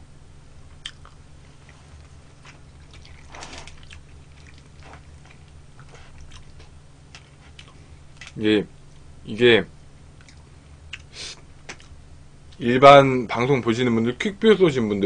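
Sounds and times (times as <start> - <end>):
low steady hum: 0.0 - 15.0
faint chewing: 0.7 - 9.1, 10.2 - 12.6.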